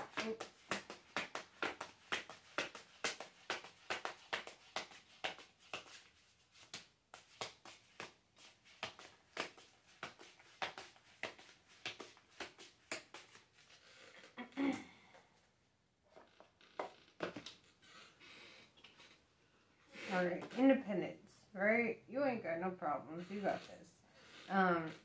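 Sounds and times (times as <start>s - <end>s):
cards being shuffled: 0.0s - 13.8s.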